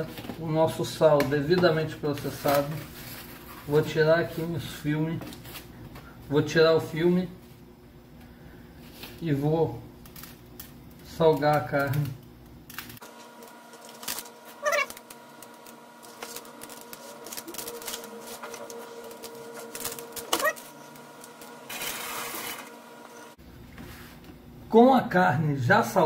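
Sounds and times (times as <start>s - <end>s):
electrical hum: 0.0s - 26.0s
short rising high-pitched cries: 14.6s - 15.0s.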